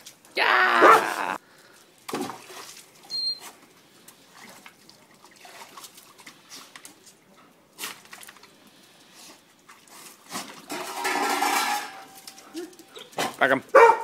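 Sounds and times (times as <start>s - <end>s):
dogs splashing in water: 2.0s - 7.1s, 9.4s - 14.0s.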